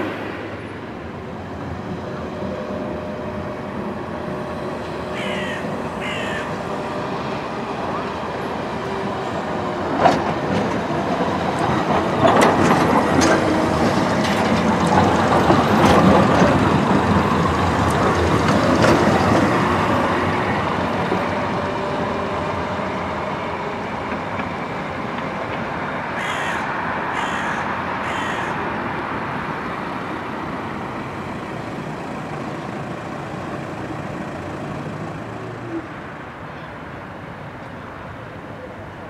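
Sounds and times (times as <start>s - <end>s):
tram rolling on rails: 0.0s - 39.0s
short harsh calls: 26.2s - 28.6s.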